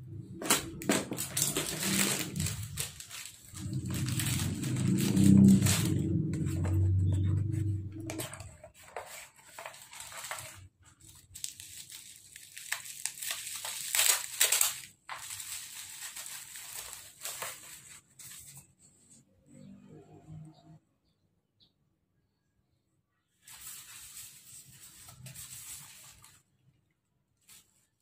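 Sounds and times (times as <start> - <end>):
plastic bag and bubble wrap rustling: 0.1 - 18.8, 23.4 - 26.7, 27.3 - 28.0
low pitched sound: 3.5 - 8.4.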